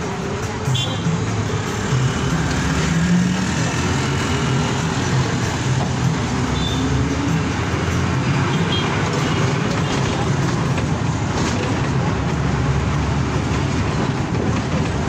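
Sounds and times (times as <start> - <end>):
bus engine drone: 0.0 - 15.0
road and tyre noise: 0.0 - 15.0.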